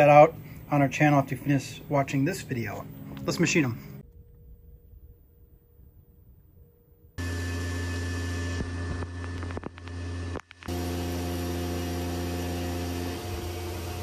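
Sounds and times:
milling machine humming: 0:07.2 - 0:14.0
sharp clicks: 0:09.0 - 0:10.7.

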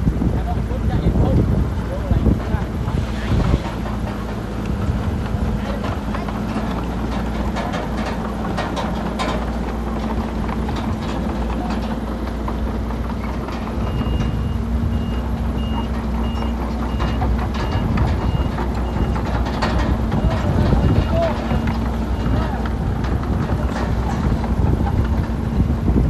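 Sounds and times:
heavy diesel machinery running: 0:00.0 - 0:26.0
metal clanks and knocks: 0:02.1 - 0:25.4
reversing alarm beeping: 0:13.8 - 0:19.2, 0:20.1 - 0:22.5.

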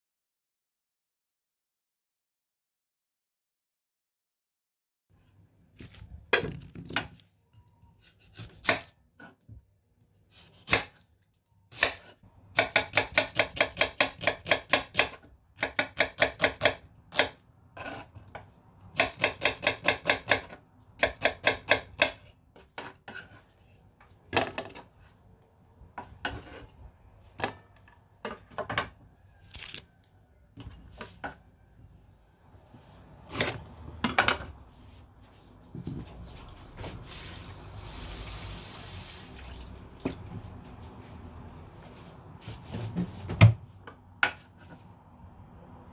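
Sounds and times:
knife chopping on wooden board: 0:11.7 - 0:23.4.

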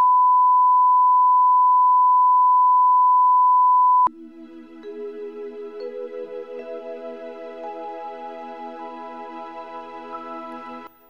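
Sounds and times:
background music with sustained notes: 0:04.1 - 0:11.0.

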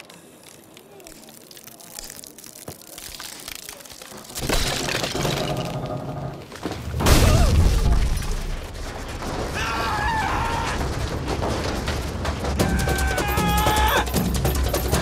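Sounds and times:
heavy crash: 0:04.4 - 0:14.9.

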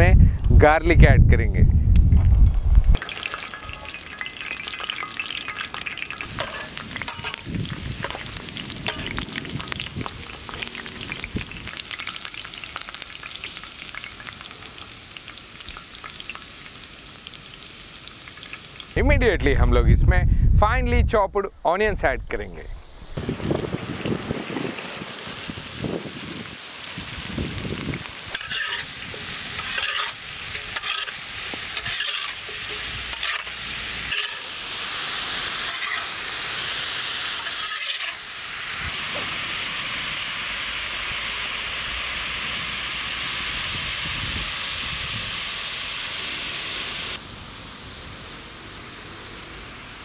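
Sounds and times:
onions sizzling in hot oil: 0:03.0 - 0:19.0, 0:22.8 - 0:50.0
metal spatula scraping pan: 0:06.3 - 0:07.4, 0:28.3 - 0:34.6, 0:35.6 - 0:36.1, 0:37.4 - 0:38.2.

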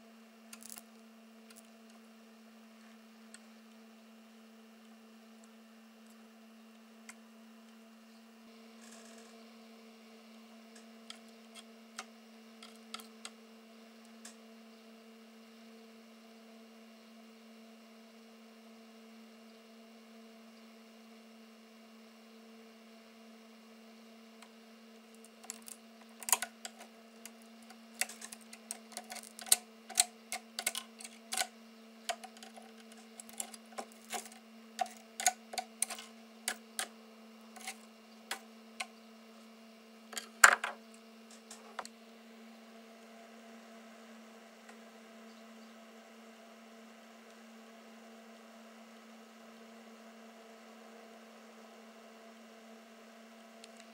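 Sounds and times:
steady low hum: 0:00.0 - 0:53.9
screwdriver tapping and scraping: 0:25.2 - 0:31.5, 0:32.1 - 0:36.9, 0:37.5 - 0:38.9, 0:40.1 - 0:41.9.

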